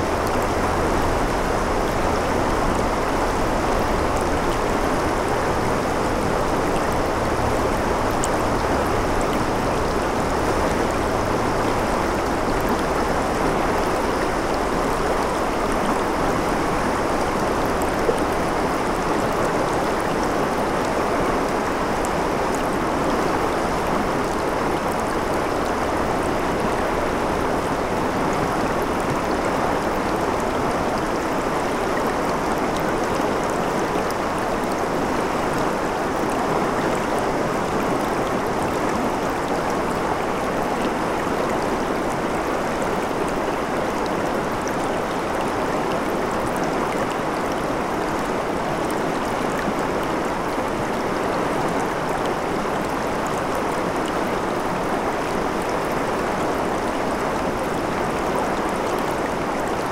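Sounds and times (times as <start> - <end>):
water rushing over rocks: 0.0 - 59.9.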